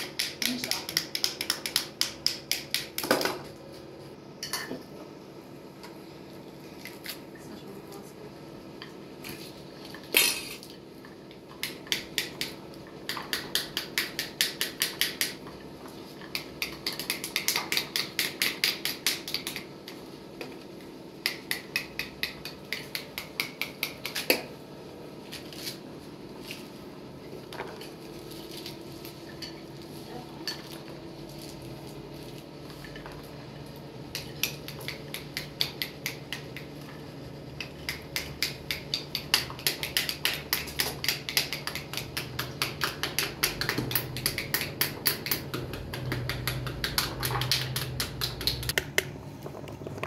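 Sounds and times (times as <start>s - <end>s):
utensil tapping pomegranate: 0.0s - 3.3s, 11.6s - 15.6s, 16.2s - 20.0s, 21.2s - 24.5s, 34.1s - 37.0s, 37.6s - 49.1s.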